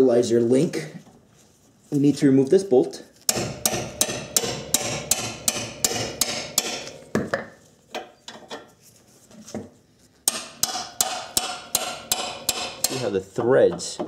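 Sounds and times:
hammer striking metal wrench: 0:03.3 - 0:07.2, 0:10.3 - 0:14.0.

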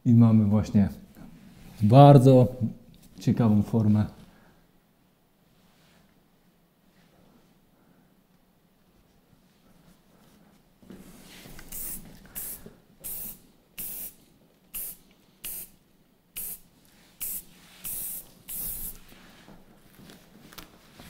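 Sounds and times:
hairspray hissing bursts: 0:11.6 - 0:15.8, 0:16.4 - 0:19.1.

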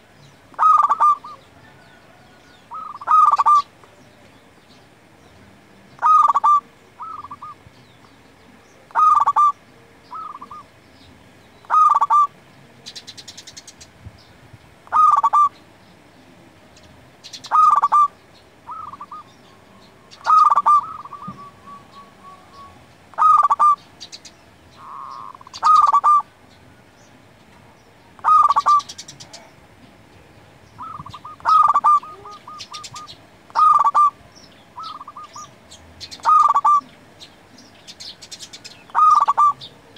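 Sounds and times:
dove cooing: 0:00.5 - 0:03.7, 0:06.0 - 0:07.6, 0:08.8 - 0:10.7, 0:11.6 - 0:12.4, 0:14.8 - 0:15.6, 0:17.3 - 0:23.8, 0:24.7 - 0:26.3, 0:28.2 - 0:29.6, 0:30.8 - 0:37.0, 0:38.6 - 0:39.9.

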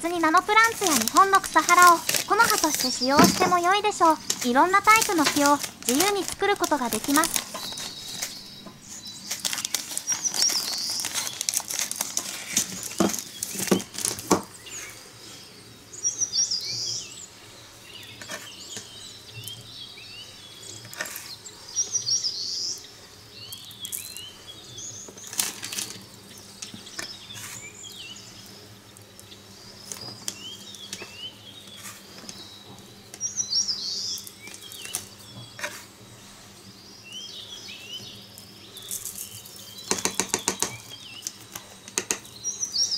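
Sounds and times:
scissors cutting plastic bag: 0:00.0 - 0:14.5, 0:25.2 - 0:26.0
small birds chirping: 0:00.0 - 0:42.9.

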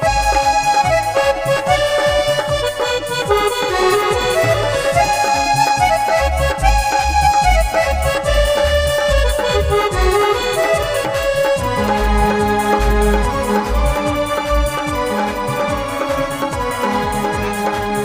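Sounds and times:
deep bass beats: 0:00.0 - 0:18.0
reed-like melody: 0:00.0 - 0:18.0
steady percussion: 0:00.0 - 0:18.0.

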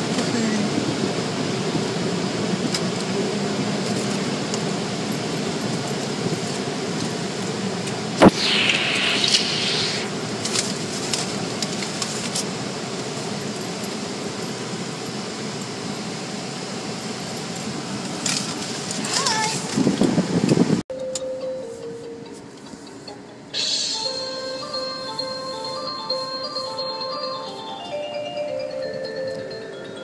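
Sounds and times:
sharp knock: 0:08.2 - 0:10.1
hiss: 0:08.2 - 0:17.7, 0:23.5 - 0:25.7.

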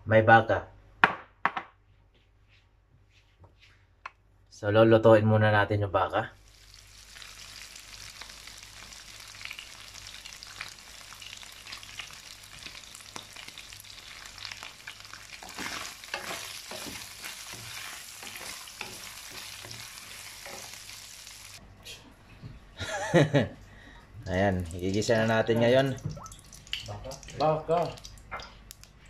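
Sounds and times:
beef sizzling in hot oil: 0:06.4 - 0:21.6
wooden spatula scraping wok: 0:15.3 - 0:21.1.

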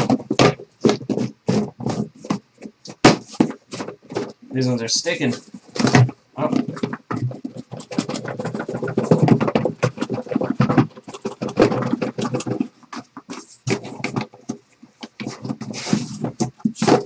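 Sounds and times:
cardboard and plastic wrap scraping: 0:00.0 - 0:17.0.

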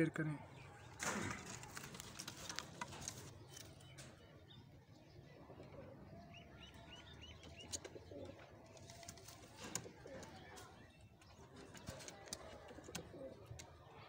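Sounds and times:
pigeons cooing: 0:07.5 - 0:10.7, 0:11.5 - 0:13.9.

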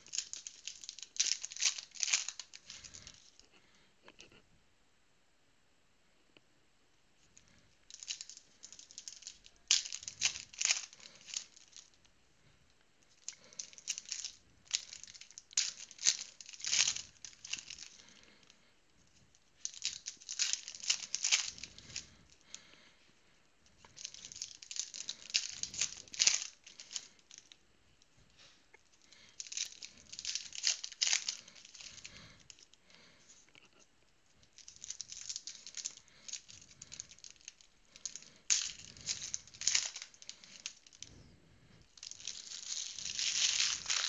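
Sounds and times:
wrappers crinkling and tearing: 0:00.0 - 0:03.4, 0:07.9 - 0:12.0, 0:13.1 - 0:18.5, 0:19.4 - 0:22.7, 0:23.8 - 0:27.6, 0:28.4 - 0:32.8, 0:34.4 - 0:41.2, 0:41.9 - 0:44.0.

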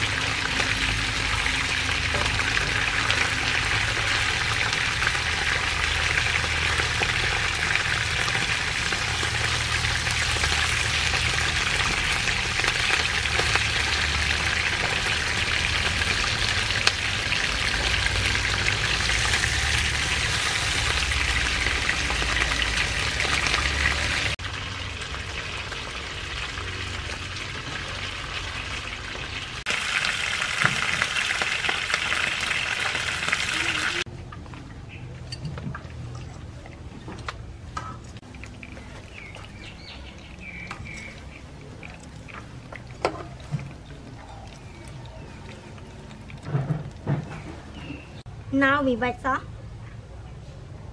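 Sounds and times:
fish sizzling in hot oil: 0:00.0 - 0:34.1.

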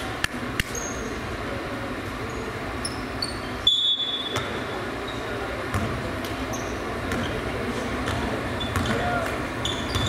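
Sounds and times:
gym background noise: 0:00.0 - 0:10.0
sneakers squeaking on floor: 0:00.7 - 0:01.2, 0:02.2 - 0:10.0
basketball bouncing on wooden floor: 0:07.1 - 0:07.4.

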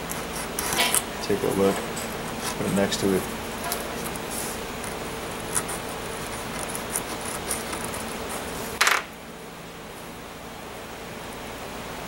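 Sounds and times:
hand tool scratching cement: 0:00.0 - 0:01.5, 0:02.3 - 0:03.0, 0:03.8 - 0:08.6.

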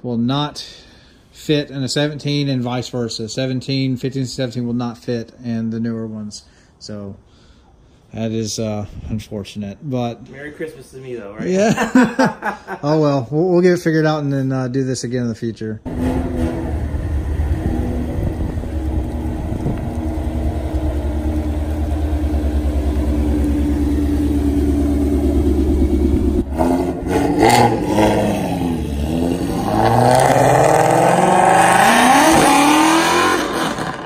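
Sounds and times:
car engine idling and revving: 0:15.9 - 0:34.0.

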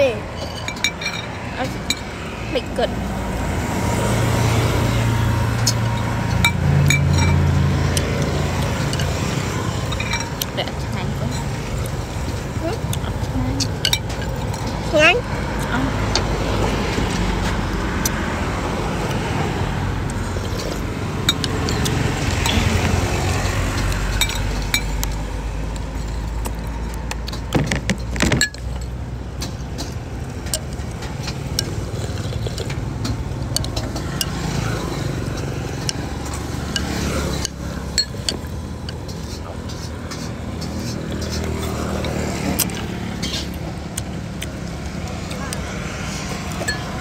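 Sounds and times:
spoon and chopsticks clinking bowl: 0:00.3 - 0:02.1, 0:06.0 - 0:07.6, 0:08.2 - 0:11.5, 0:13.0 - 0:15.1, 0:24.2 - 0:25.2, 0:36.6 - 0:39.9, 0:46.5 - 0:47.0.

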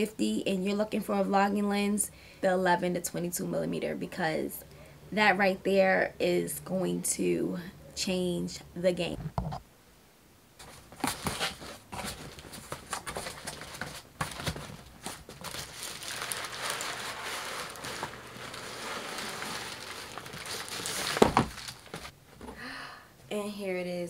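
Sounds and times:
plastic packing crinkling: 0:11.0 - 0:22.2.

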